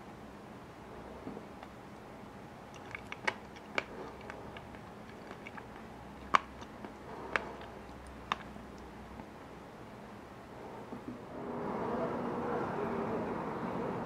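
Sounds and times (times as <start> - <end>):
faint low hum: 0.0 - 14.0
clicks and taps in glass bowl: 2.8 - 8.8.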